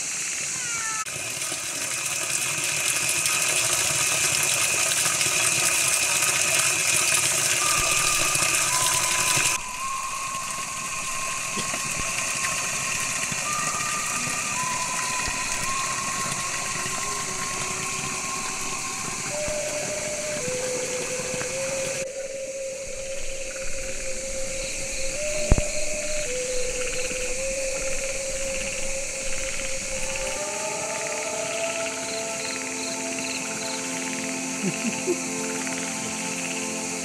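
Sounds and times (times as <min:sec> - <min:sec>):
night insects hissing: 0:00.0 - 0:37.0.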